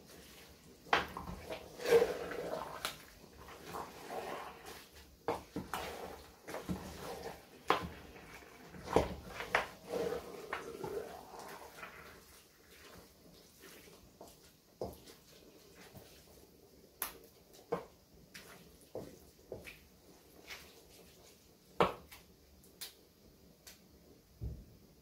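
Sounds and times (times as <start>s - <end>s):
wet squelching of soup greens: 0.0s - 16.3s.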